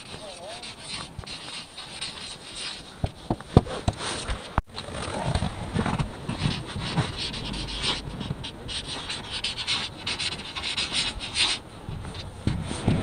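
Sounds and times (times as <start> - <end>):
marker scratching on wall: 0.0 - 3.4, 6.3 - 13.0.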